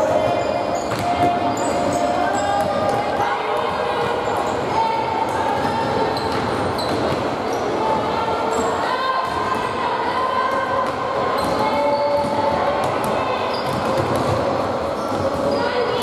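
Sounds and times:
sneakers squeaking: 0.0 - 9.8, 10.4 - 16.0
players' voices: 0.0 - 16.0
ball bouncing on hardwood court: 0.8 - 4.2, 5.3 - 7.3, 10.5 - 15.6.

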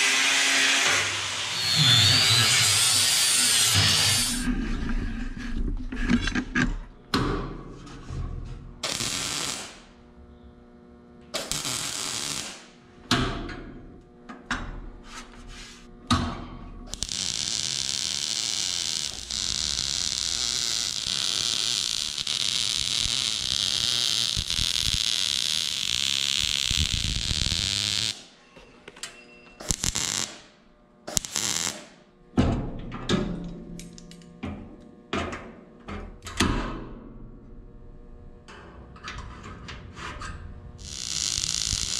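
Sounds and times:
welder arc crackling: 8.8 - 10.0, 11.4 - 12.8, 16.9 - 28.3, 29.6 - 30.5, 31.1 - 31.9, 40.8 - 41.9.

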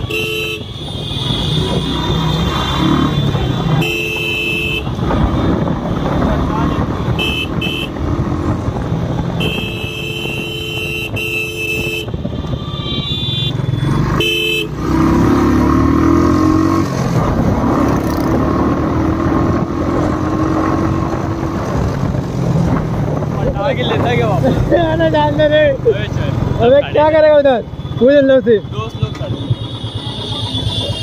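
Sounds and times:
vehicle horns honking: 0.0 - 5.6, 6.7 - 8.1, 9.3 - 15.0, 27.7 - 31.0
road noise: 0.0 - 31.0.

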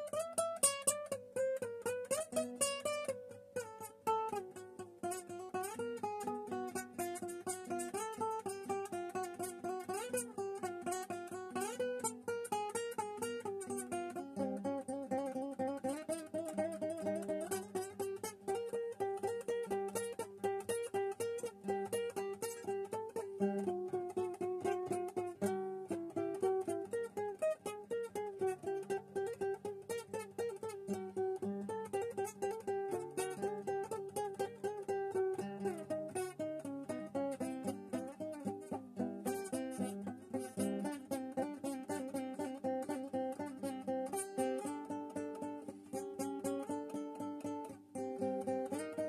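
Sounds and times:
acoustic guitar playing: 0.0 - 49.0.

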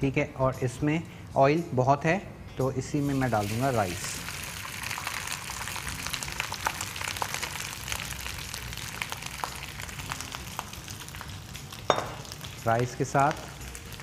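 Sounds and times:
rice sizzling in hot oil: 3.0 - 14.0.

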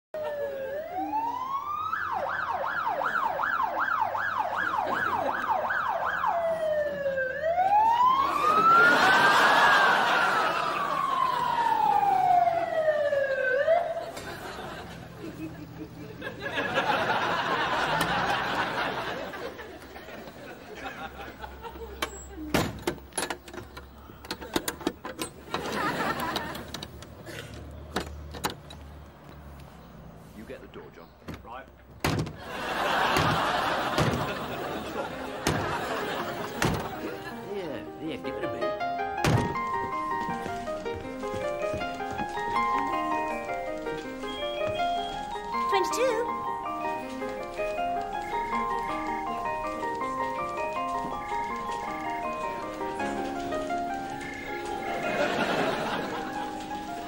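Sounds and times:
ambulance siren wail and yelp: 0.2 - 14.6
vehicle passing: 2.5 - 22.0
padlock and metal bolt clicking: 22.0 - 25.6.

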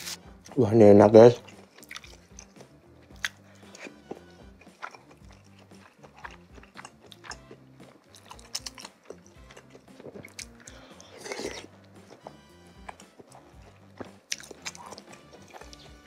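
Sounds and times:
soft background music with beat: 0.0 - 16.0
close-up chewing and biting: 1.4 - 16.0
mouth clicks and smacks: 8.2 - 11.6, 14.0 - 16.0.

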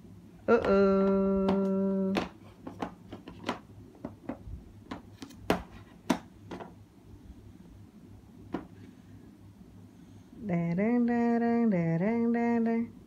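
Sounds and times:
plastic tools clicking and tapping: 0.6 - 6.8.

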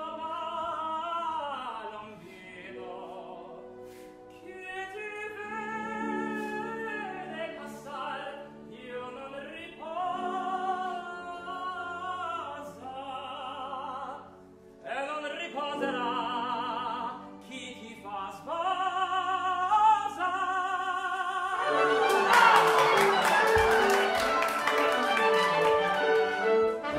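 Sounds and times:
man singing opera: 0.0 - 26.9
orchestra playing: 21.4 - 26.9
hand clapping: 21.6 - 26.9.

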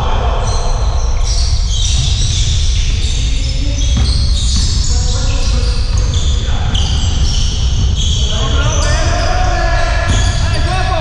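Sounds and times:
low rumble in hall: 0.0 - 11.0
basketball dribbling on court: 3.8 - 9.3.

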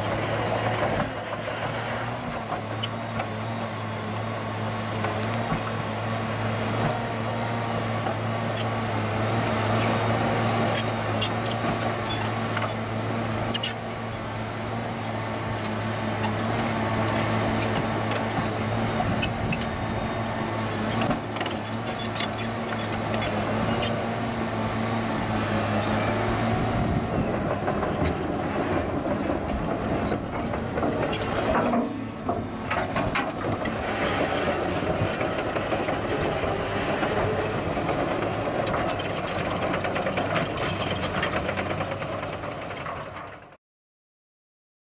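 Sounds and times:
diesel engine under load: 0.0 - 43.6
steel tracks clanking: 15.4 - 43.4.

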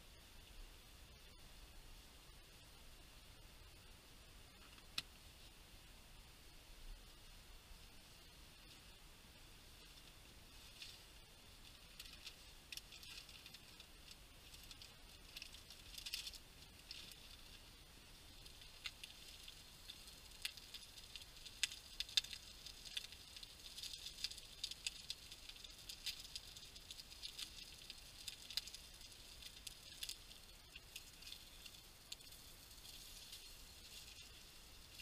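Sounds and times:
meat sizzling in a frying pan: 10.4 - 35.0.

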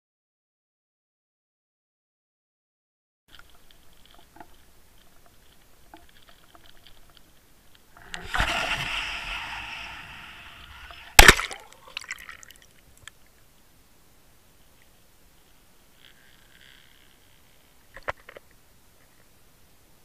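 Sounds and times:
bubbling and crackling water: 3.3 - 13.4
rushing air on microphone: 8.0 - 11.8
camera smacking into water: 8.0 - 12.1.

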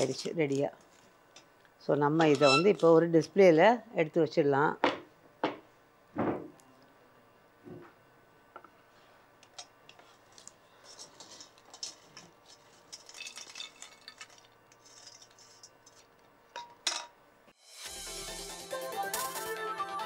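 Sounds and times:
sweets rattling onto glass plate: 10.8 - 15.7.

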